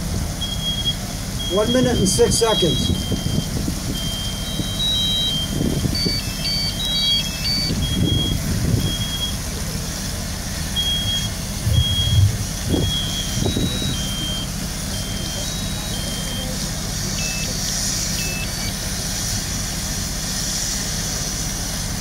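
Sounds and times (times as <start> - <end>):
low engine rumble: 0.0 - 22.0
smoke alarms beeping: 0.4 - 9.5, 10.6 - 18.9
wind on microphone: 11.6 - 14.2.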